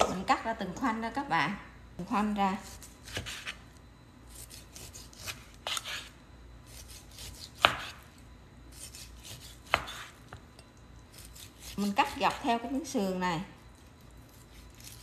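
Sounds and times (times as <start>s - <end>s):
knife slicing and scraping: 2.6s - 3.6s, 4.3s - 10.4s, 11.1s - 12.4s, 14.0s - 15.0s.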